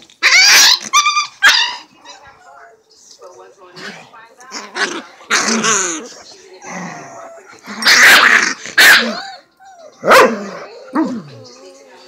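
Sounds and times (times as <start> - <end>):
dogs snarling and yelping: 0.1 - 2.3, 4.6 - 11.4.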